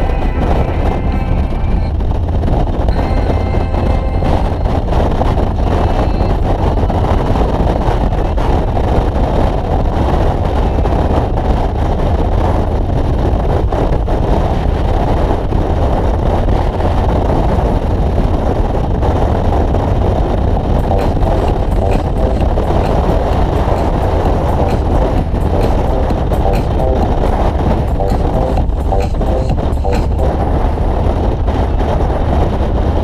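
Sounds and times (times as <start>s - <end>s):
motorcycle engine: 0.0s - 7.4s, 20.0s - 31.9s
wind rushing on microphone: 0.0s - 33.0s.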